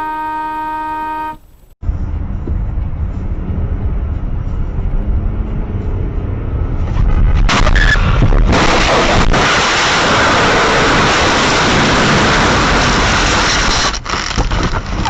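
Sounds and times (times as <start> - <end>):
car horn honk: 0.0 - 1.5
car engine and road rumble: 0.0 - 15.0.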